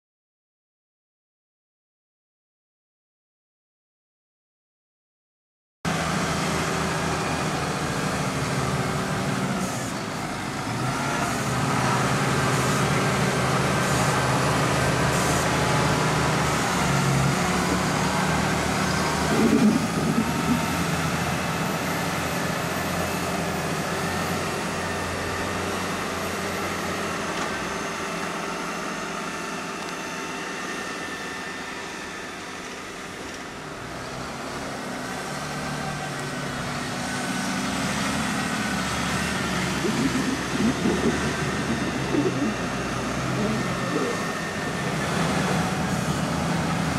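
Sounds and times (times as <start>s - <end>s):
tractor engines working under load: 5.9s - 46.9s.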